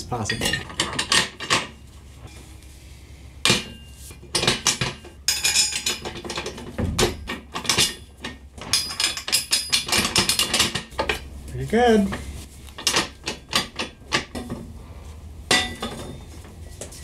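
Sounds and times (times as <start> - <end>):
steel plates clanking on a frame: 0.0 - 2.4, 3.4 - 11.3, 12.8 - 14.6, 15.5 - 16.3.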